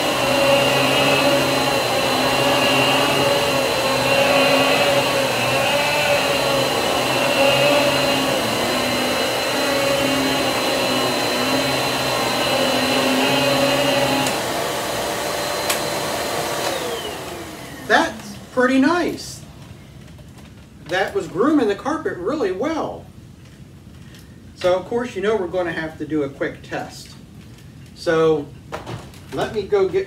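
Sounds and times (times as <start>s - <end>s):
power head pushed over carpet: 0.0s - 17.8s
vacuum cleaner whining: 0.0s - 19.4s.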